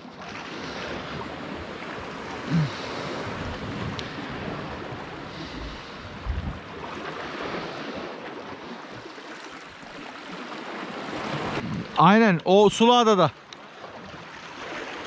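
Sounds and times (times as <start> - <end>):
small waves lapping on rocks: 0.0 - 15.0
wind buffeting microphone: 0.8 - 8.2, 11.3 - 12.0.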